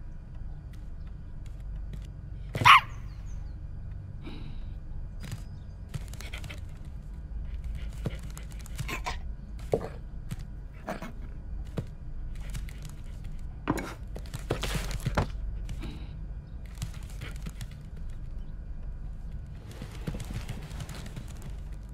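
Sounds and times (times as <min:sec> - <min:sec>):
steady low hum: 0:00.0 - 0:21.9
scrapes knocks and rustles: 0:09.6 - 0:15.8.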